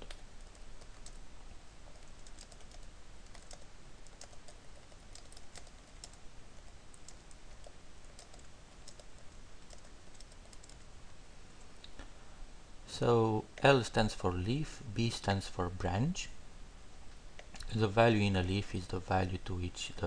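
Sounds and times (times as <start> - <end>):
keyboard typing: 0.0 - 1.2, 1.9 - 10.9.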